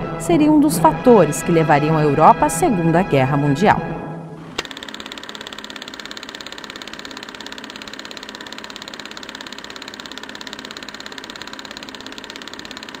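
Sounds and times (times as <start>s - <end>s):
film projector clattering: 4.6s - 13.0s.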